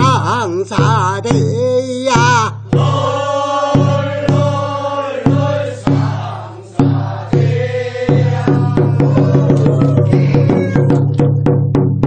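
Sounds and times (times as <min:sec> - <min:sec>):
percussion strikes: 0:00.0 - 0:12.0
group chanting in unison: 0:02.7 - 0:10.9.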